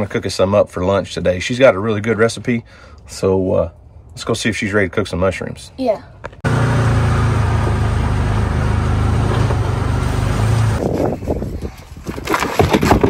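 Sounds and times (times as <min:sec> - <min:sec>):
vehicle engine running: 0:06.4 - 0:10.8.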